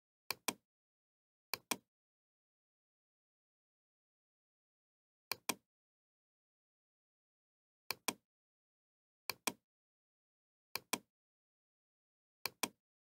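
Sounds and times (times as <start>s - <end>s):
computer mouse clicking: 0.3s - 0.6s, 1.5s - 1.8s, 7.9s - 8.2s, 9.3s - 9.6s, 10.8s - 11.1s, 12.4s - 12.8s.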